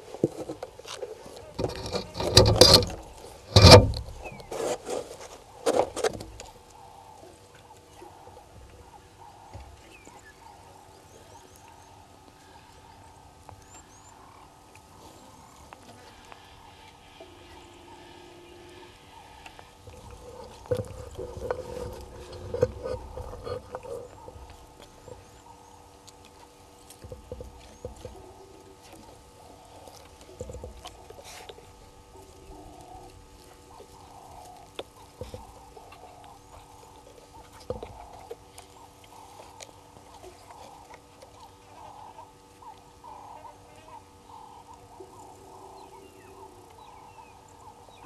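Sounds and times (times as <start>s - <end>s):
rustling in dry leaves: 0.0s - 6.7s
faint steady hum: 0.0s - 48.0s.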